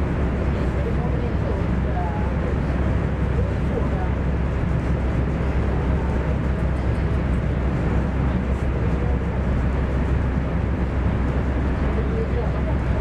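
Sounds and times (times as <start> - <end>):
train wheels rumbling on rail: 0.0 - 13.0.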